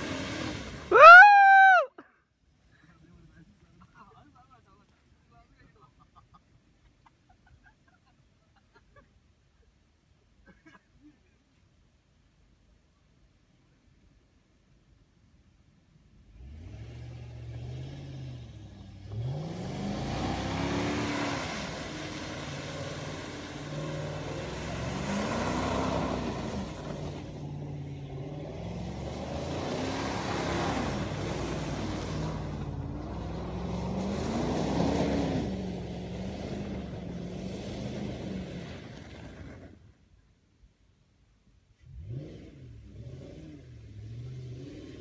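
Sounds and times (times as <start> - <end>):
distant engine revving: 16.3 - 39.8
wheels spinning in mud: 19.0 - 40.0.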